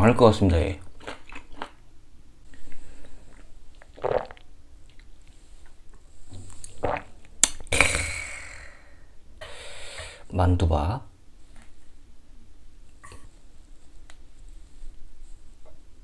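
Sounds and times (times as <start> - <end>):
person chewing: 0.8 - 1.8, 2.5 - 5.8
person drinking: 2.5 - 10.2
short breathy hiss: 7.7 - 10.3.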